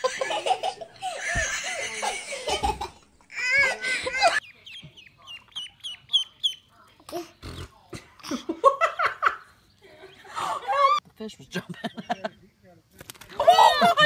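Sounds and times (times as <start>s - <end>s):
ducklings peeping: 4.4s - 6.7s.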